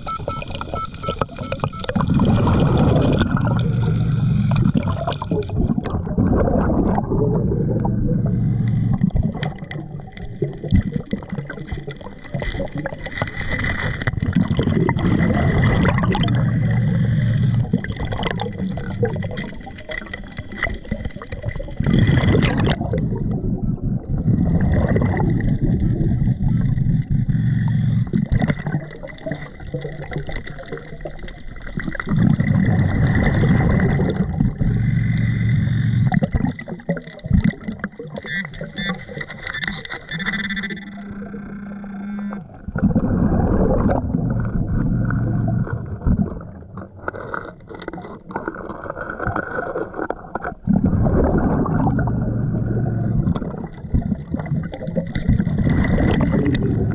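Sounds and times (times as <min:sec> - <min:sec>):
bubbling regulator exhalations: 0:00.0 - 0:56.9
gravel clicks and scrapes: 0:44.4 - 0:50.8.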